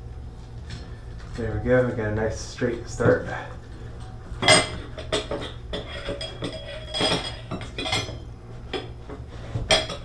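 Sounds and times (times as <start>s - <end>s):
metal spout clinking and scraping: 4.0s - 8.2s.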